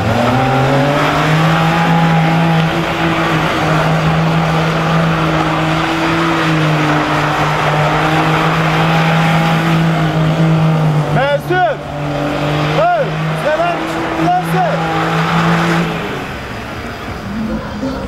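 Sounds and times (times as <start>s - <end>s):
car engine at steady revs: 0.0s - 18.0s
wheels spinning on dirt: 0.0s - 18.0s.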